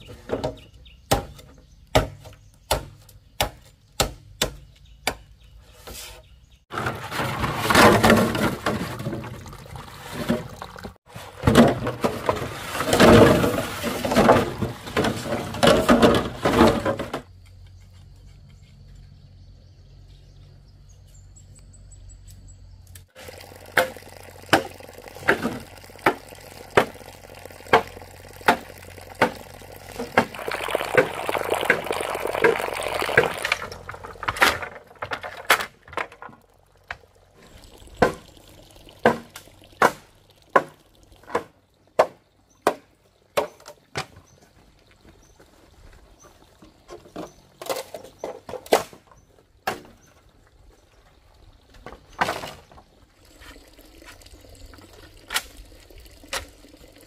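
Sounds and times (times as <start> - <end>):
water splashing: 6.8 - 16.9, 23.1 - 43.0.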